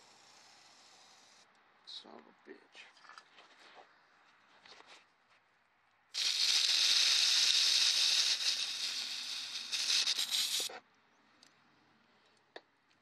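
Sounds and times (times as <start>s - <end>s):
aerosol can spraying hiss: 6.2s - 10.7s.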